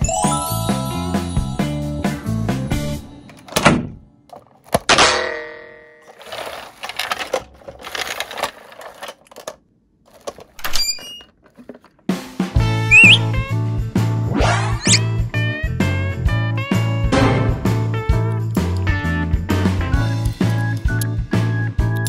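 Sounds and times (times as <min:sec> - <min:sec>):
music jingle: 0:00.0 - 0:03.0.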